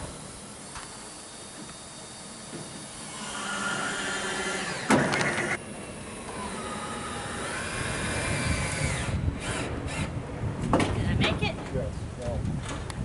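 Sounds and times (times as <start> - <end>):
power drill driving screw into metal: 2.6 - 5.6.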